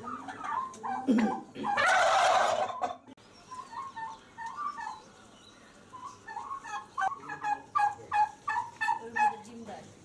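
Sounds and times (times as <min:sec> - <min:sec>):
turkeys chirping: 0:00.0 - 0:09.7.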